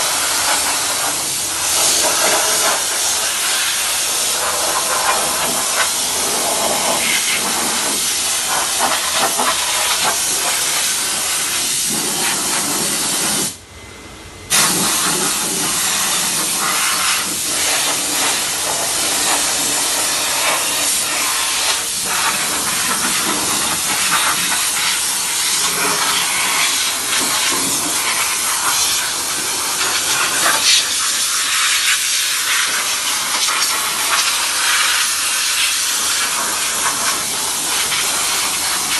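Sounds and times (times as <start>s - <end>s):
steam cleaner hissing: 0.0s - 13.6s, 14.5s - 38.9s.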